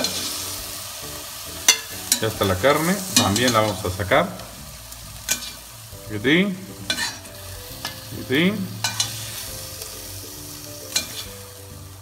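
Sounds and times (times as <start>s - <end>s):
hot oil sizzling: 0.0s - 12.0s
metal tongs scraping a pot: 1.6s - 3.9s, 5.2s - 5.7s, 6.8s - 9.9s, 10.9s - 11.4s
tongs squeaking: 6.9s - 8.0s, 10.9s - 11.3s
tongs clicking: 10.9s - 11.3s.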